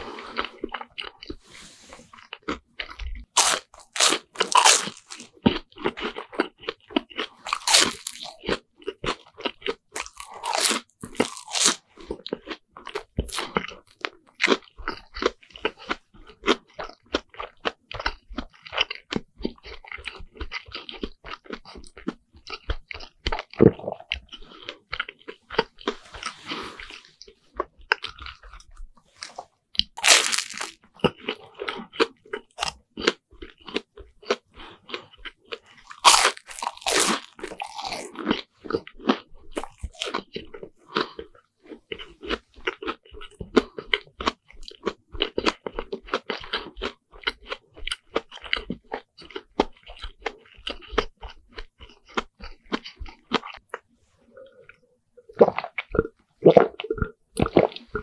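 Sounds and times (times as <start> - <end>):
crunchy fried bread chewing: 0.0 - 58.0
wet mouth clicks: 53.3 - 58.0.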